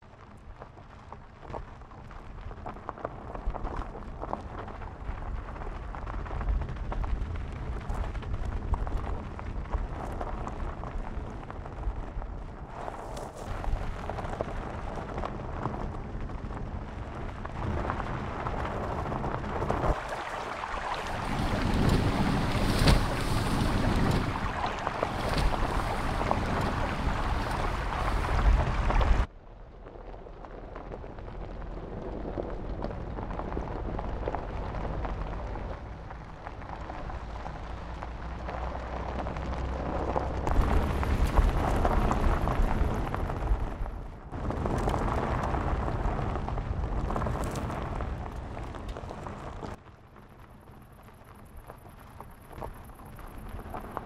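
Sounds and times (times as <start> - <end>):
vehicle engine low rumble: 0.0 - 20.0, 21.0 - 54.0
tyres crunching over stones: 0.2 - 20.4, 21.1 - 29.3, 29.9 - 54.0
water splashing from tyres: 19.6 - 29.3.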